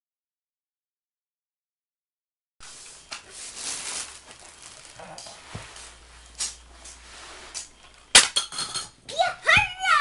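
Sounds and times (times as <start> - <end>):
steady hiss: 2.6 - 8.2.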